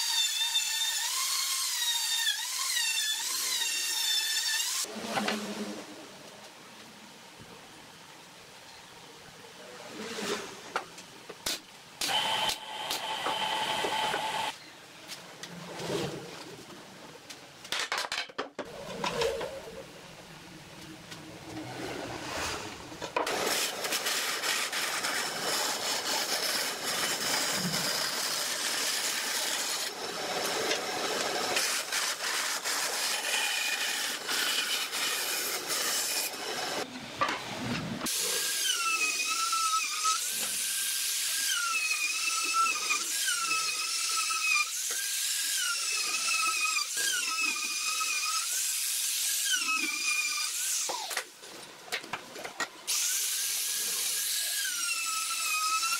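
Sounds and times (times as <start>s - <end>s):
power tool cutting wood: 0.0s - 5.3s, 12.0s - 14.6s, 23.2s - 36.9s, 38.0s - 51.3s, 52.9s - 55.9s.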